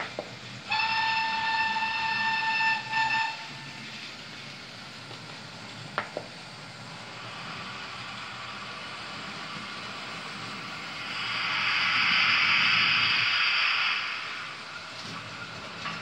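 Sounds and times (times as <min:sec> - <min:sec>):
train horn through small speaker: 0:00.7 - 0:03.8.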